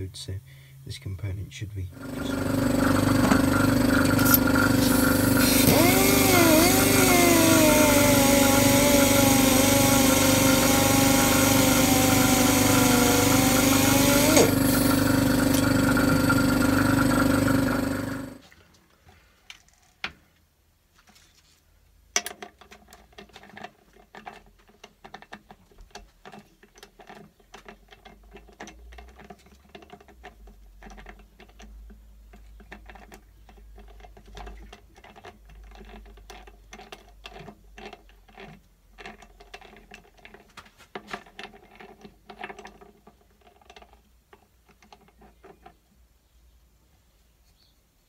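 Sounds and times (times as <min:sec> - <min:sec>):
lathe chuck clicking and rattling: 0:02.0 - 0:18.4.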